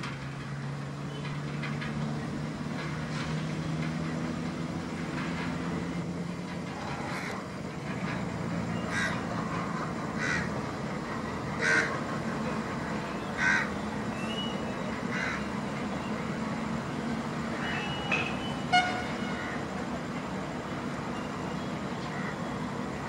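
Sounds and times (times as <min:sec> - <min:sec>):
diesel engine rumble: 0:00.0 - 0:23.0
bird calling: 0:11.5 - 0:16.4, 0:17.5 - 0:19.6.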